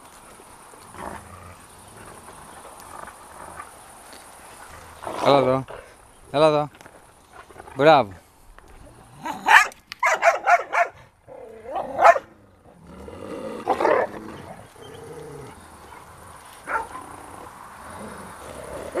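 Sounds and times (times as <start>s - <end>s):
dogs barking and yelping: 9.2s - 12.4s, 13.6s - 17.5s.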